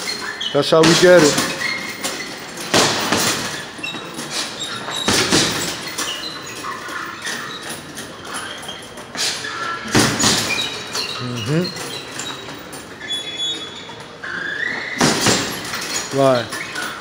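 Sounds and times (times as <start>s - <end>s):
short high squeaks: 0.0s - 17.0s
punches thudding on heavy bag: 0.8s - 1.6s, 2.6s - 3.6s, 5.0s - 5.8s, 9.9s - 10.5s.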